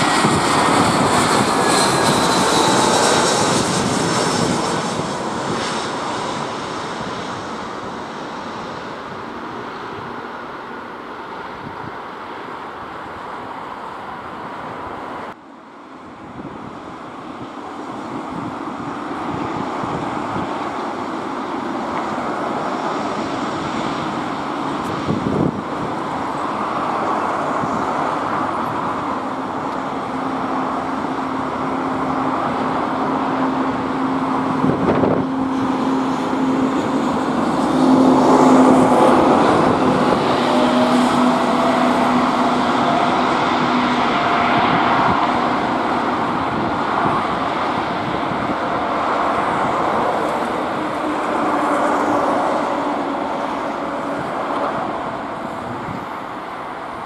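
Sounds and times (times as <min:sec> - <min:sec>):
higher engine whine: 0:00.0 - 0:57.0
jet engines taxiing: 0:00.0 - 0:57.0.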